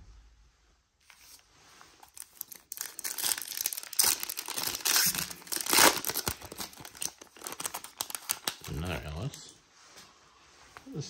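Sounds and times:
foil wrapper tearing and crinkling: 0:02.0 - 0:09.2.

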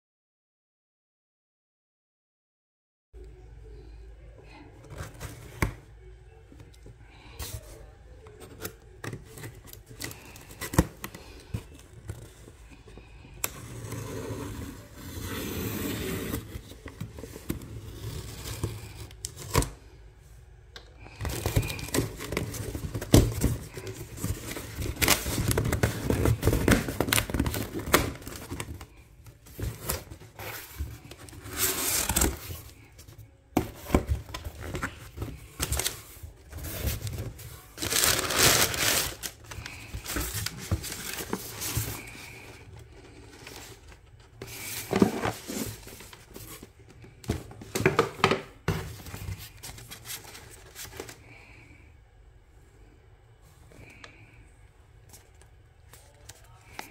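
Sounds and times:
packing paper rustling: 0:21.0 - 0:46.7, 0:48.9 - 0:51.6.

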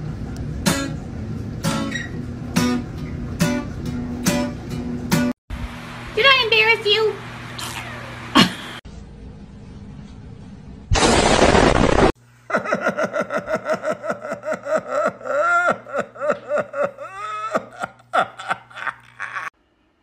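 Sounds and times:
person laughing hard: 0:12.5 - 0:19.5.

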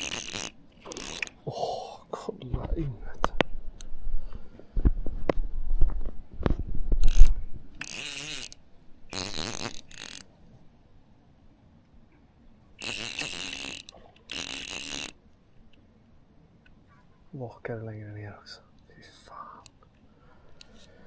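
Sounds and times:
fishing reel whirring: 0:00.0 - 0:01.4, 0:07.0 - 0:10.3, 0:12.8 - 0:15.2
low rumbling and thumps: 0:02.4 - 0:07.8.

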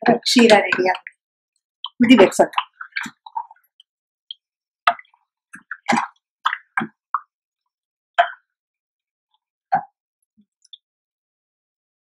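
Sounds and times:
thick liquid plopping: 0:01.9 - 0:03.7, 0:04.9 - 0:07.3.

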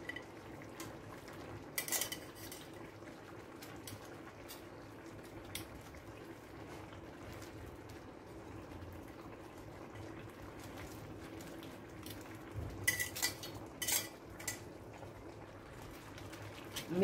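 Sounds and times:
metal tongs clinking on ceramic: 0:01.8 - 0:02.7, 0:12.9 - 0:14.6.

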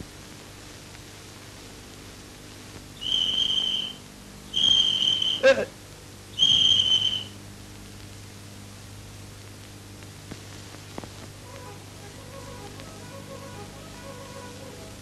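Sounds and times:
film soundtrack hiss and hum: 0:00.0 - 0:15.0
whistle blast: 0:03.0 - 0:05.5, 0:06.4 - 0:07.4
faint music: 0:09.1 - 0:15.0.

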